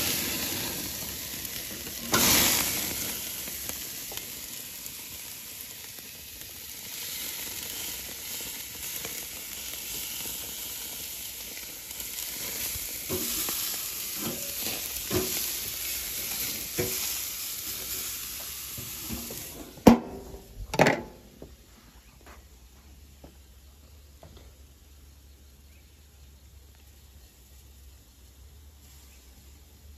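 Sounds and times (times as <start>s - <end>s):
steaks sizzling on a grill: 0.0s - 19.8s, 28.8s - 29.9s
grill lid clanking shut: 2.0s - 2.5s, 19.1s - 21.3s.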